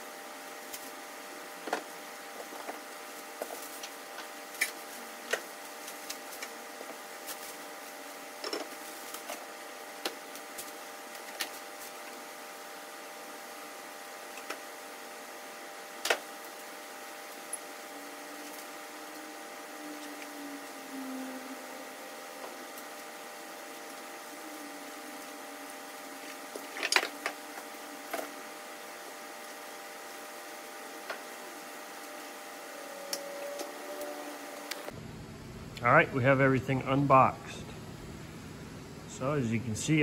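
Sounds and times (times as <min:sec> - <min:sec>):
steady hum with fixed tones: 0:00.0 - 0:40.0.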